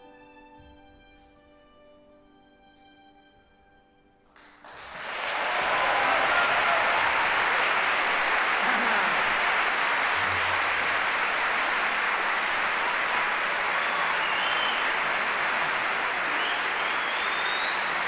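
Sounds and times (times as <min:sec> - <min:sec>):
large audience applauding: 0:04.4 - 0:18.0.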